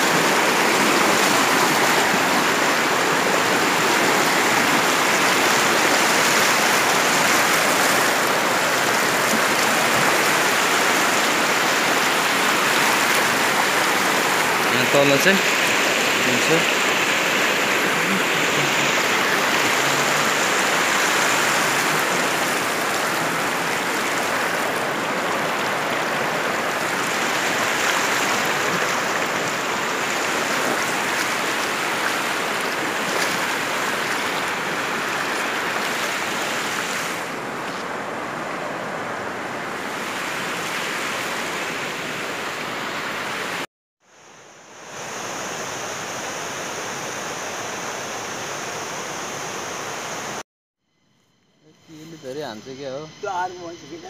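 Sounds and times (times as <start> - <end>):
river rushing over rocks: 0.0 - 43.6
faint steady hiss: 44.1 - 54.0.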